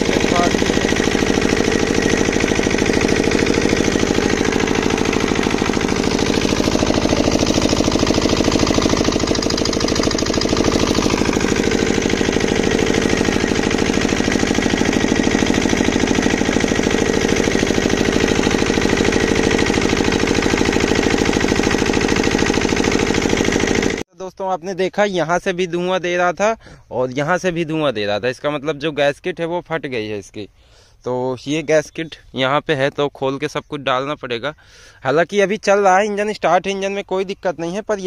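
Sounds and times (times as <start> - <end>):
diesel engine chugging: 0.0 - 24.0.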